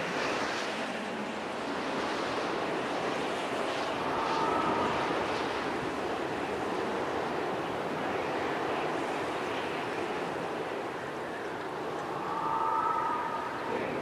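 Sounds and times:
steady rushing noise: 0.0s - 14.0s
faint high held tones: 12.0s - 14.0s.

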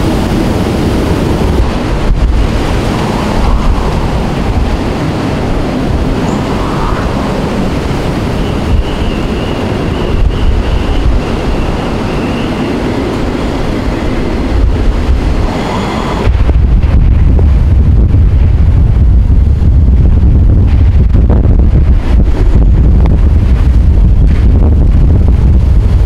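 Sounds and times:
strong wind blowing: 0.0s - 26.0s
wind buffeting microphone: 0.0s - 26.0s
faint high whistle: 8.4s - 11.2s.

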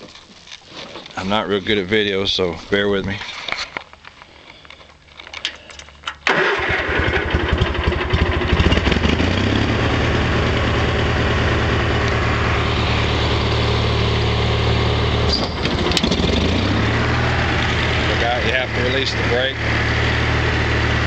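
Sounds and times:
mower engine running: 6.2s - 21.0s.

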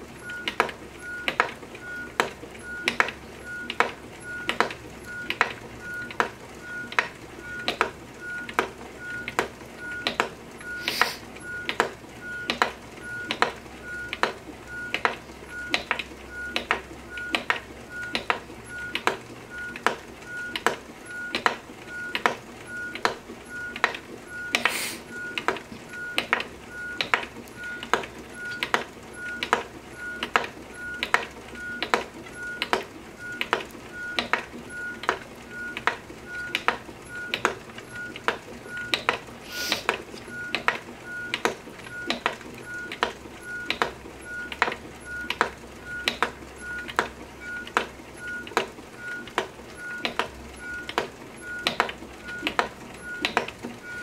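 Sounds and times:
brief hisses: 10.8s - 11.2s, 24.6s - 25.1s, 39.4s - 39.9s.

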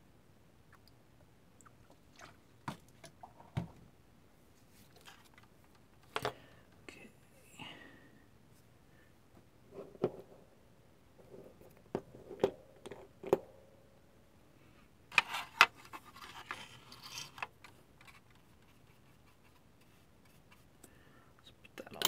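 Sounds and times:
scratchy scraping rustle: 15.1s - 20.7s.

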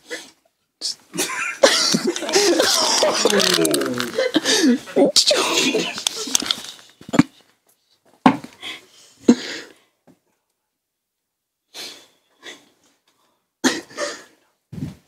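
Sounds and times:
stifled laughter: 1.1s - 6.6s.

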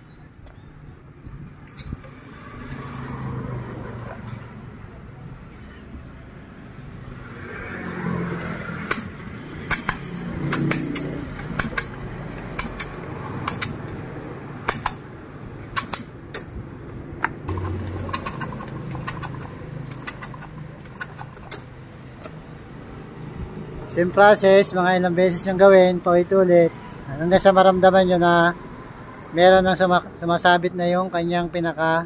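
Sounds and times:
metallic clicks of hand tools: 9.7s - 13.9s, 15.6s - 16.5s, 17.5s - 21.8s.

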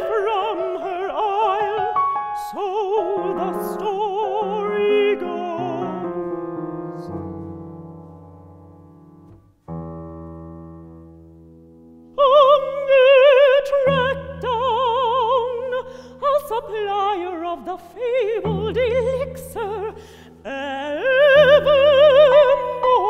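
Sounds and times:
woman singing opera: 0.0s - 6.2s, 12.1s - 23.0s
low piano chords: 0.0s - 23.0s.

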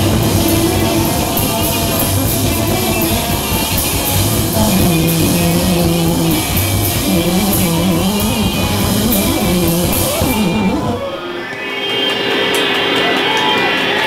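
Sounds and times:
drums with cymbal strikes: 0.0s - 11.1s
person singing: 0.0s - 11.2s
guitar: 0.0s - 14.0s.

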